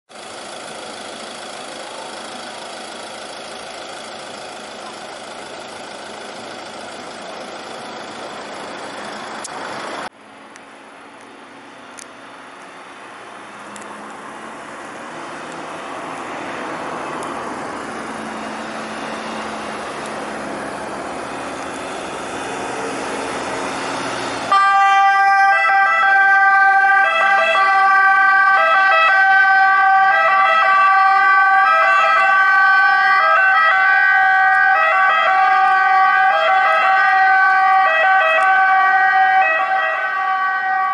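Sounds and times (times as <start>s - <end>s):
ambulance engine and tyres: 0.1s - 40.9s
two-tone siren: 24.5s - 40.9s.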